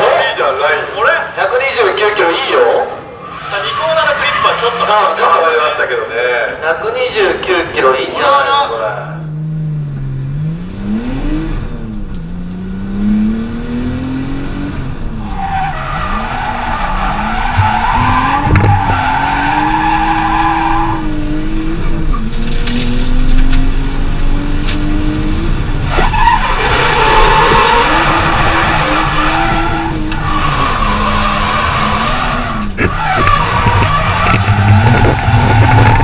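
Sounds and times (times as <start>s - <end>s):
car engine revving: 9.1s - 36.0s
tyres squealing: 15.2s - 21.0s, 25.9s - 36.0s.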